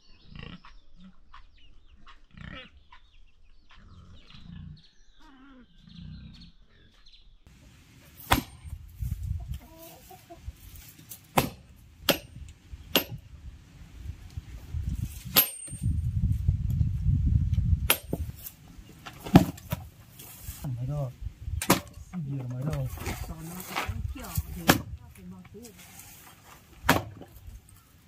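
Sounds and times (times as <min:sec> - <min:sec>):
chickens clucking: 0:09.0 - 0:11.2
sharp knocks: 0:11.3 - 0:13.2.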